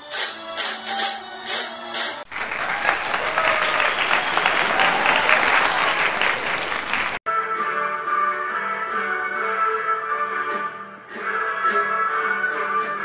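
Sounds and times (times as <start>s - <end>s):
crowd applauding: 2.3s - 7.2s
music with held notes: 7.3s - 13.0s.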